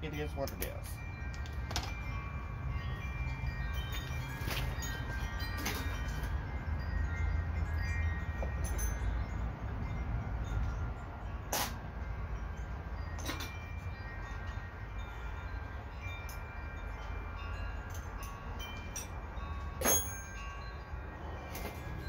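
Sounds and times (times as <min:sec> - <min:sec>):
metal wind chimes ringing: 0:00.0 - 0:22.0
sharp metallic clank: 0:11.5 - 0:11.9, 0:19.8 - 0:20.4.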